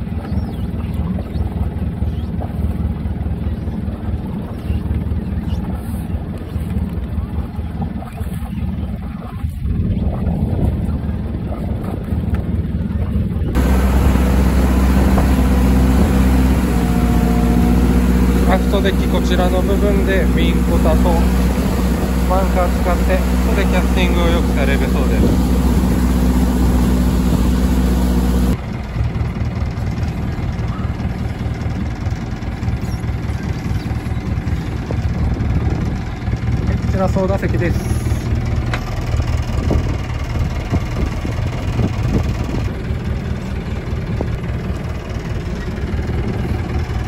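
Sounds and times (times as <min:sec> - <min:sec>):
boat diesel engine droning: 0:00.0 - 0:47.0.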